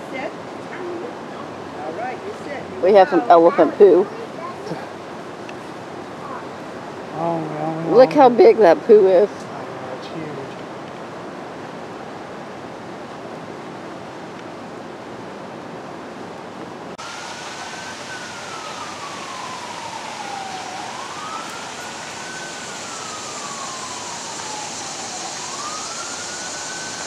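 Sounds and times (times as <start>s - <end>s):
steady outdoor hiss: 0.0s - 27.0s
emergency vehicle siren wailing: 0.1s - 4.8s, 5.8s - 9.3s, 17.0s - 27.0s.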